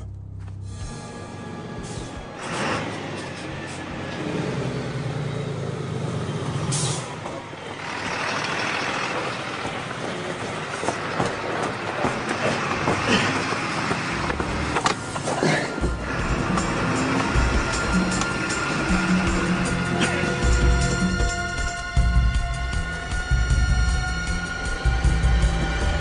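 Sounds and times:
diesel truck engine: 0:00.0 - 0:26.0
air brakes hissing: 0:06.6 - 0:07.2.

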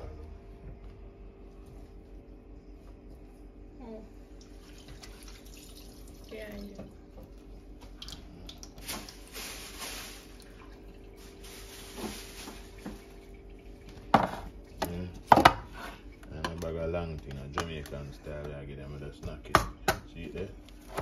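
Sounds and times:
steady low hum: 0:00.0 - 0:21.0
running water: 0:04.4 - 0:14.0.

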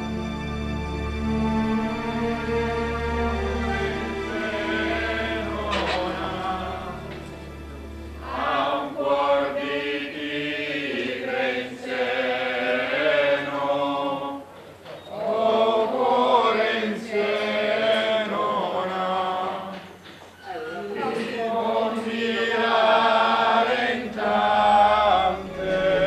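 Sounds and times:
background music: 0:00.0 - 0:20.0, 0:20.9 - 0:26.0
group singing a hymn: 0:01.7 - 0:26.0.

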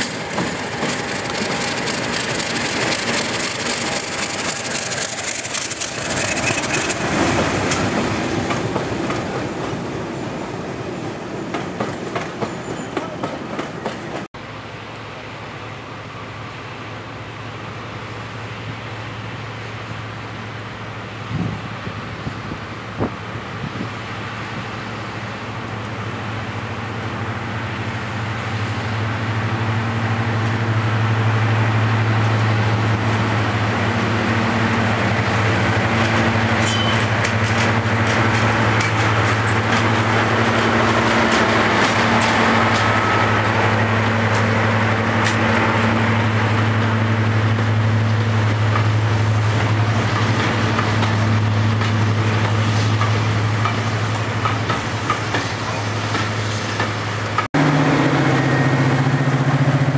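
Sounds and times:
train wheels clicking over rail joints: 0:00.0 - 0:09.8, 0:11.4 - 0:14.3, 0:34.6 - 0:58.2
diesel locomotive engine drone: 0:00.0 - 0:59.9.

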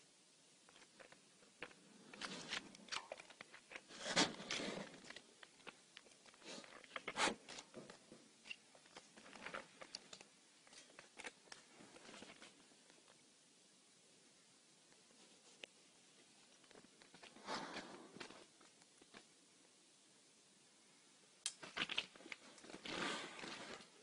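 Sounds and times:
rustling: 0:00.6 - 0:13.3, 0:14.8 - 0:19.4, 0:21.6 - 0:24.0.

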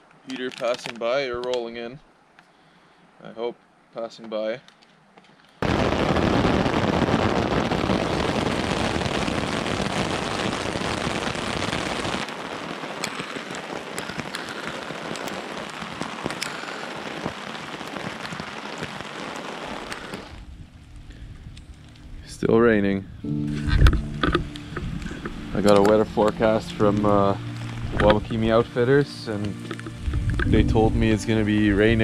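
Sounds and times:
raindrops ticking close by: 0:00.0 - 0:02.5, 0:08.9 - 0:22.9, 0:23.8 - 0:32.0
heavy rain: 0:05.6 - 0:32.0.

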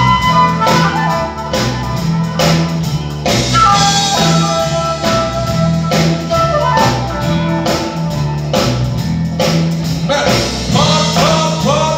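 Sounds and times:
flute melody: 0:00.0 - 0:09.3
bass line: 0:00.0 - 0:11.9
drum kit beat: 0:00.0 - 0:11.9.

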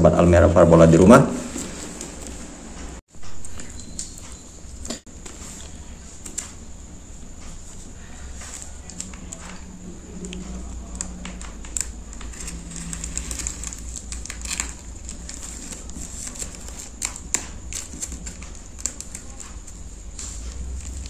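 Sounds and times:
plastic wrapping crinkling: 0:10.2 - 0:21.0.

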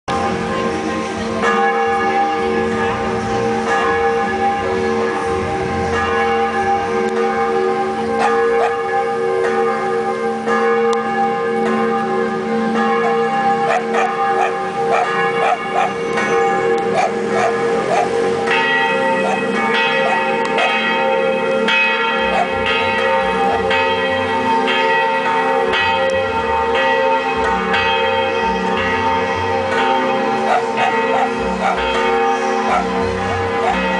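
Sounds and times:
church bells ringing: 0:00.1 - 0:33.9
dogs barking: 0:08.2 - 0:08.9, 0:12.9 - 0:18.3, 0:19.1 - 0:20.9, 0:22.2 - 0:22.8, 0:30.4 - 0:33.9.

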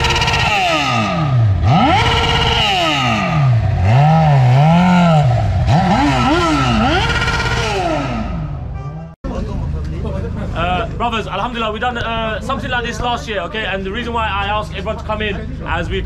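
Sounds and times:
engines revving: 0:00.0 - 0:08.8.

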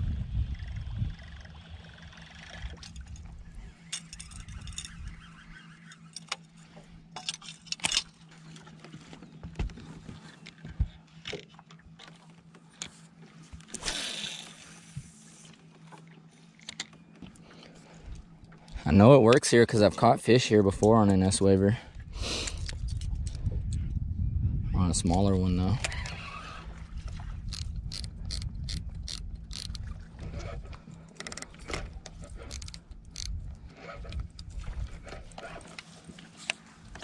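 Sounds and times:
low steady hum: 0:00.0 - 0:37.0
fishing reel clicking: 0:03.9 - 0:05.2, 0:27.4 - 0:29.8, 0:31.2 - 0:33.4.

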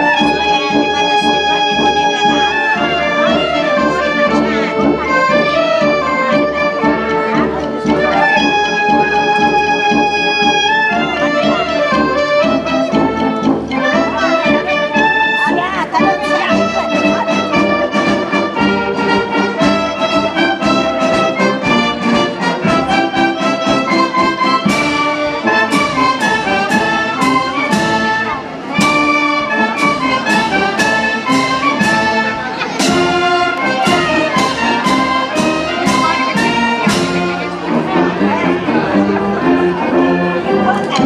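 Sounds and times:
wind band playing: 0:00.0 - 0:41.0
percussion hits: 0:12.3 - 0:38.0.

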